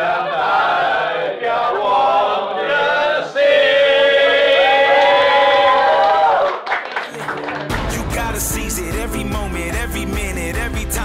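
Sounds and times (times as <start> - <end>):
wordless choral chant: 0.0 - 4.9.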